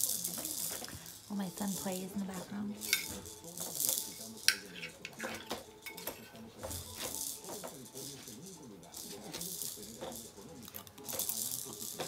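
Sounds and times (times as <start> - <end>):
fork scraping and clinking plate: 4.4 - 7.0.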